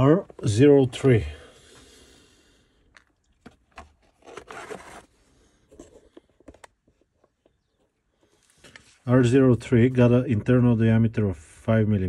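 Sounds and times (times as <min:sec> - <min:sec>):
plastic case clicks and scrapes: 0:03.0 - 0:05.1, 0:05.7 - 0:06.8.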